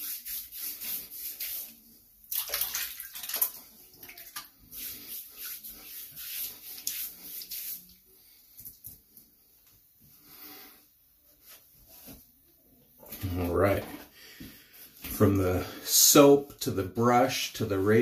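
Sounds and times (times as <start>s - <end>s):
wet water and lather: 0.0s - 8.0s.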